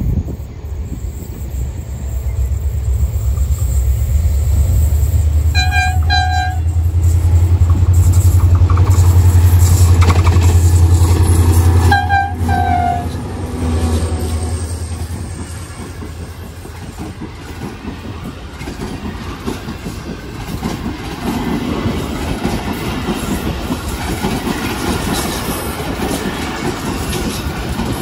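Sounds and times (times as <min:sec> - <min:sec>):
diesel locomotive engine rumble: 0:00.0 - 0:28.0
train coaches rolling past: 0:00.0 - 0:28.0
train horn toots: 0:04.8 - 0:15.9.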